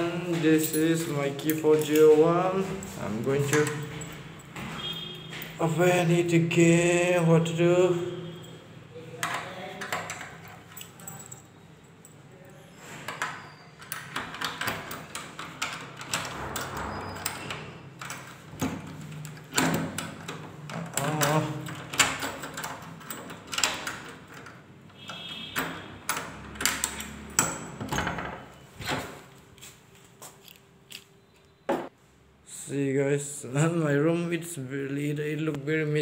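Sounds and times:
key working in door lock: 0.5 - 8.6, 9.2 - 28.6
metal door handle rattling: 13.8 - 28.5.

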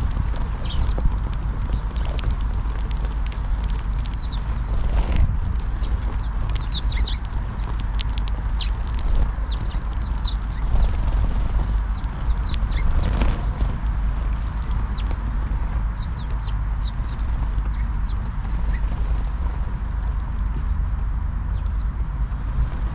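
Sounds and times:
sparrows chirping: 0.0 - 2.4, 3.5 - 13.4, 14.6 - 18.9
wings fluttering: 0.0 - 20.0
low rumble: 0.0 - 22.9
beaks tapping on wood: 0.3 - 13.4.

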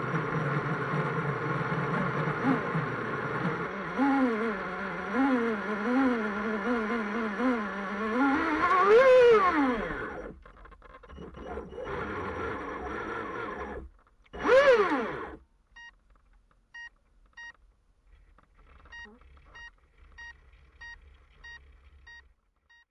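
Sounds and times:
electric motor whining: 0.0 - 15.4.

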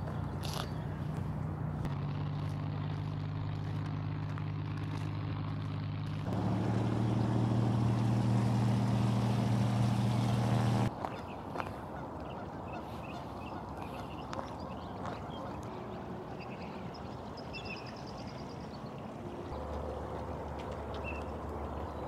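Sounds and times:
low mechanical hum: 0.0 - 10.9
open-air background noise: 0.0 - 22.0
faint birds calling: 6.4 - 20.2.

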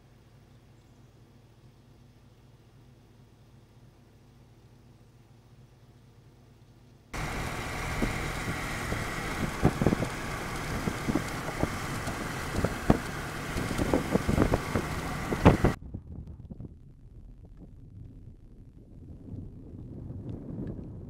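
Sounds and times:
strong wind rushing over microphone: 7.2 - 21.0
wind buffeting thumps: 7.2 - 21.0.

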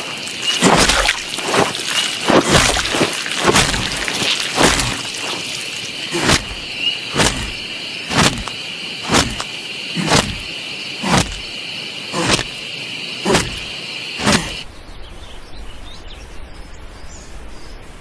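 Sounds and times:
blade hacking wet blows: 0.0 - 11.5, 12.1 - 12.6, 13.2 - 14.6
night insects chirring: 0.0 - 18.0.

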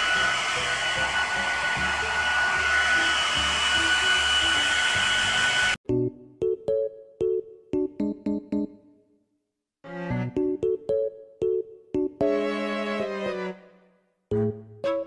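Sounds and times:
hair dryer blowing: 0.0 - 5.8
piano music: 5.8 - 8.8, 9.9 - 15.0.

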